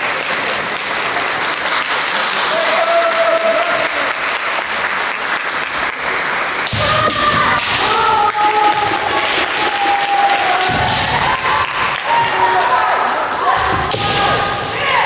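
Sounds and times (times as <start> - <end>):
clapping: 0.0 - 6.9, 7.6 - 13.9
crowd noise: 0.0 - 15.0
fighters shouting: 6.7 - 15.0.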